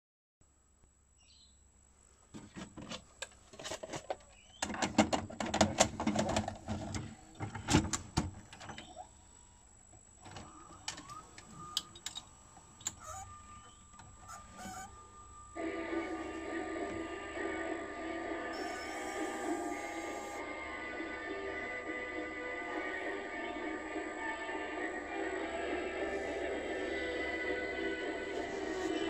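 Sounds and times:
faint mechanism whine: 0.4s - 29.0s
tape mechanism motor whirring: 10.3s - 20.4s, 28.2s - 29.0s.

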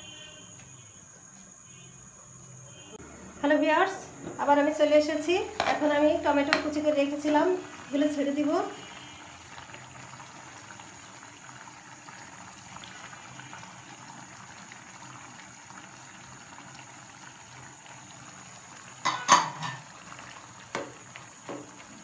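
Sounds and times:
curry bubbling in a pan: 5.6s - 22.0s.

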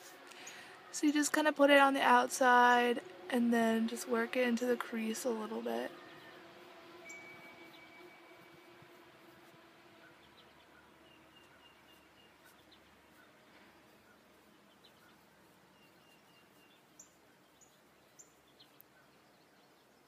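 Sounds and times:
outdoor background hiss: 0.0s - 20.0s
faint ringing tone: 7.0s - 8.7s
faint bird chirps: 10.0s - 20.0s.

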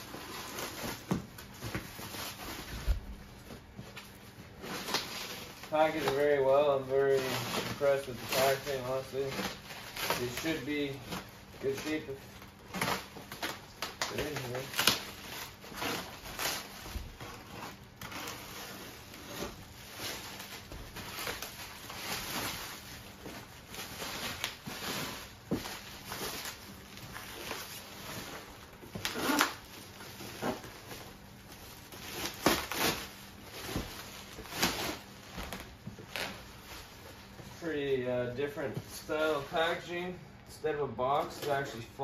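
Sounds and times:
plastic wrap crinkling: 0.0s - 40.2s
packing tape ripping: 4.6s - 36.6s.

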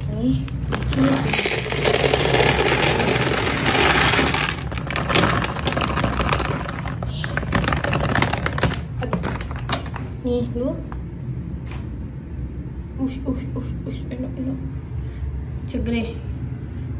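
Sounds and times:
dry kibble pouring into plastic bin: 0.7s - 10.0s.

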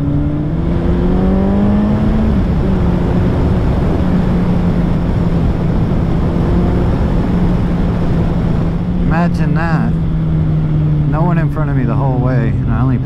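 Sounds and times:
wind rush on microphone: 0.0s - 11.2s
motorcycle engine running: 0.0s - 13.0s.

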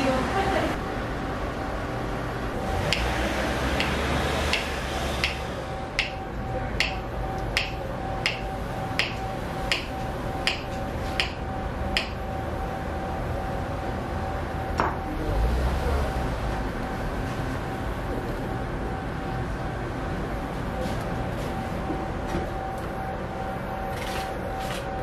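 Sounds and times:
knife tapping on wooden board: 7.6s - 8.4s.

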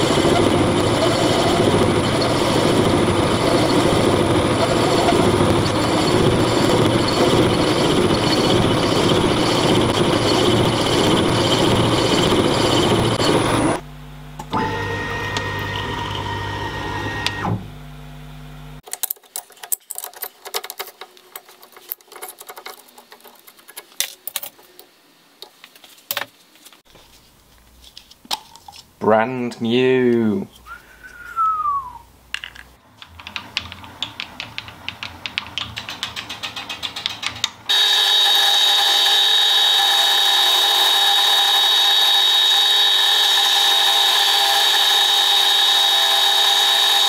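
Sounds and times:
machine tool running: 0.0s - 13.8s, 37.7s - 47.0s
motor hum: 0.0s - 18.8s, 37.7s - 47.0s
clicks and knocks of parts: 18.8s - 26.8s, 32.3s - 37.6s
regular mechanical ticking: 32.9s - 37.7s.

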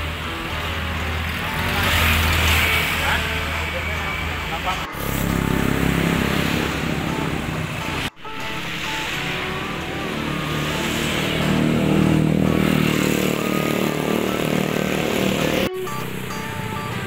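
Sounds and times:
motorcycle engine passing: 4.7s - 17.0s.

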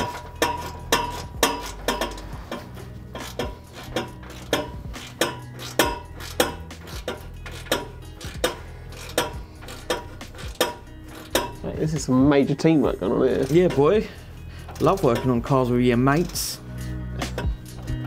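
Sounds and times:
spanners clinking on bolt: 0.0s - 18.0s.

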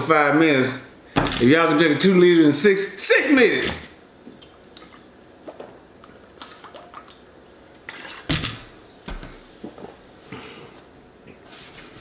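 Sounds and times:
gulping and sloshing soda: 4.4s - 8.7s.

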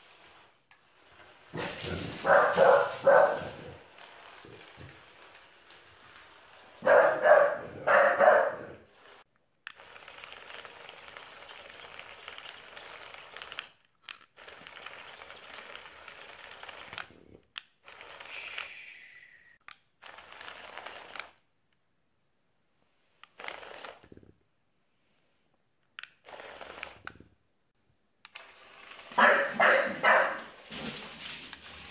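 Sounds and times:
toy robot motors rattling: 8.9s - 21.4s, 23.2s - 24.3s, 26.0s - 27.3s, 28.3s - 30.0s.

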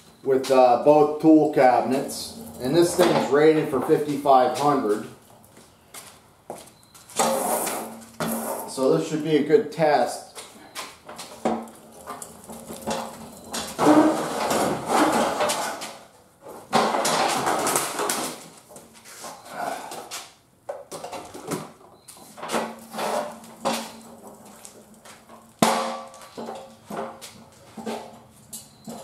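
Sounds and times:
metal clanks and knocks: 2.2s - 4.1s, 11.1s - 16.0s, 16.6s - 18.2s, 22.4s - 29.0s
sharp metal bang: 25.6s - 26.2s.

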